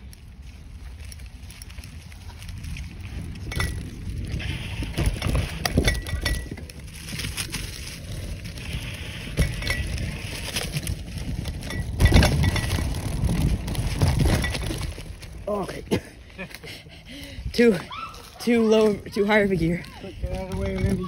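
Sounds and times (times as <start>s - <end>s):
tyre and wind rumble: 0.0s - 21.0s
bicycle parts clinking and rattling: 0.4s - 17.3s, 18.2s - 21.0s
bicycle jolt: 0.7s - 16.4s.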